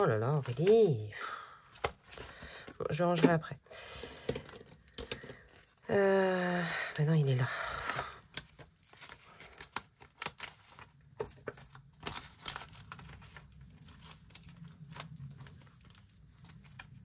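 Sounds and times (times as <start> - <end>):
paper rustling and crinkling: 0.0 - 3.4, 7.8 - 17.0.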